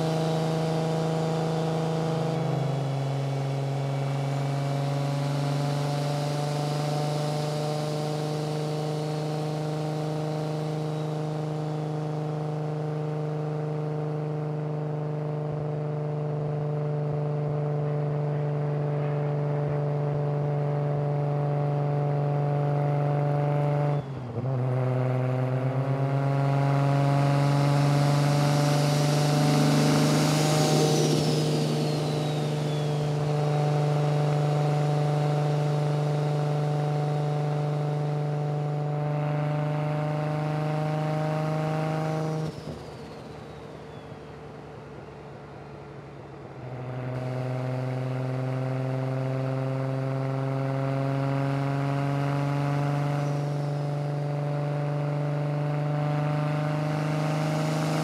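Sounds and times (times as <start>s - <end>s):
car engine droning: 0.0s - 58.0s
rush of noise with falling whistle: 4.7s - 12.4s, 27.4s - 37.3s, 42.3s - 44.7s.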